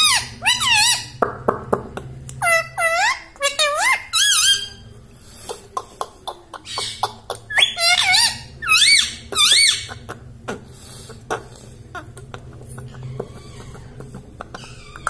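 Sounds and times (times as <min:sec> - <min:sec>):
parakeet squeaky calls: 0:00.0 - 0:01.2, 0:02.4 - 0:04.8, 0:06.7 - 0:10.0, 0:14.6 - 0:15.0.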